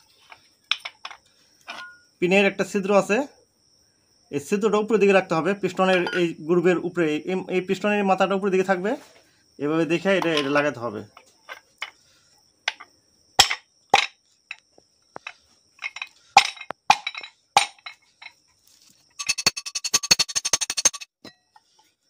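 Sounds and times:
metal parts clicking and knocking: 15.2 - 18.4, 19.2 - 21.1
metallic clinking rattle: 15.2 - 18.4, 19.2 - 21.1.

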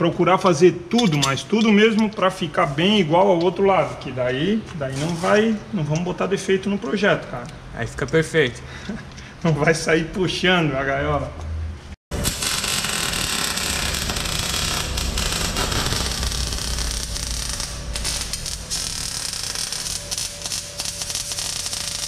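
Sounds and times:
arc welding crackle and hiss: 12.1 - 22.0.

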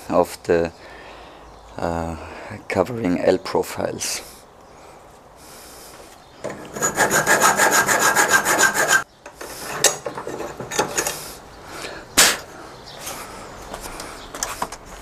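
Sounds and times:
file scraping metal: 6.4 - 11.2.

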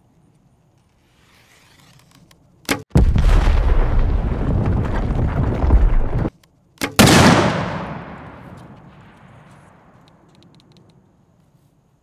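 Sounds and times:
exploding targets blast: 2.9 - 6.3, 6.9 - 9.9
rumbling explosion sound effect: 2.9 - 6.3.

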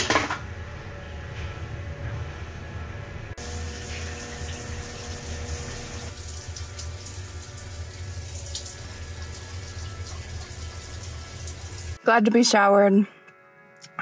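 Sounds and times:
shower water running: 3.4 - 12.0.

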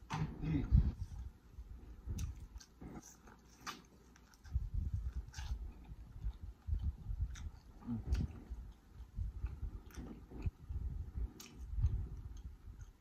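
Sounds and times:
chewing corn: 1.0 - 13.0
sharp mouth clicks: 5.3 - 13.0.

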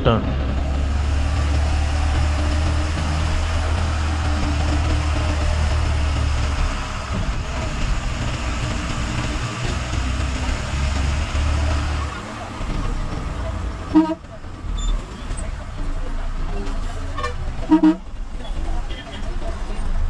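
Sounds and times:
bus engine droning: 0.0 - 20.0
tyres hissing on wet road: 0.8 - 12.6.

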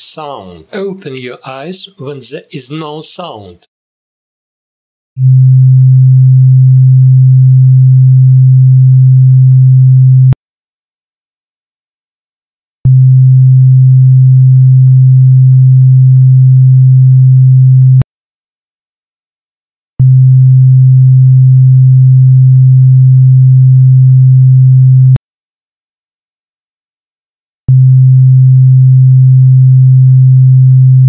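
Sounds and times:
low electronic hum tone: 5.2 - 10.4, 12.9 - 18.0, 20.0 - 25.2, 27.7 - 31.0.

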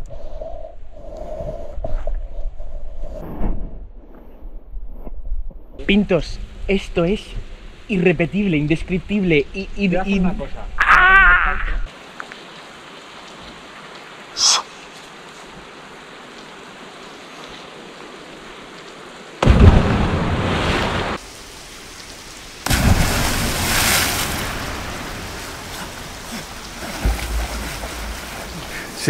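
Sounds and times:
water splashing: 17.9 - 29.0.

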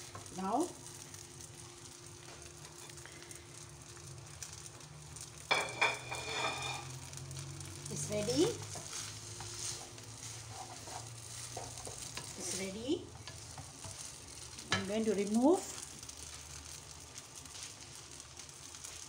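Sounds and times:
noodles sizzling in a wok: 0.0 - 19.0
wooden spatula scraping a pan: 5.5 - 7.0, 7.9 - 16.4.

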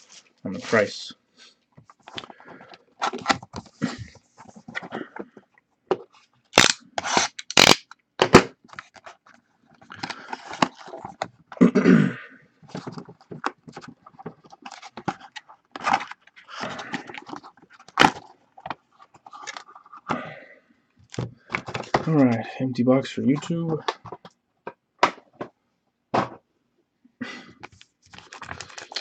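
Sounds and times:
cardboard scraping and tearing: 6.6 - 7.8.

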